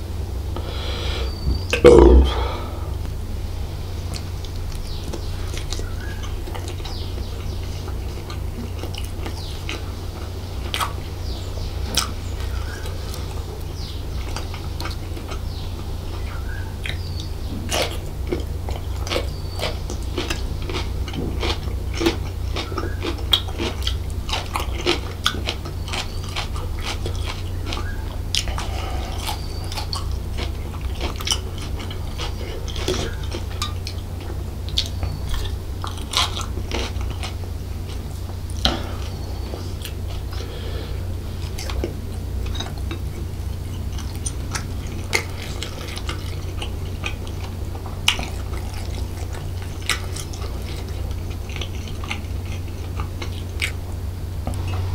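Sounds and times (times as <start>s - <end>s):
chewing food: 0.0s - 54.9s
steady low hum: 0.0s - 54.9s
wet mouth clicks: 1.3s - 2.6s.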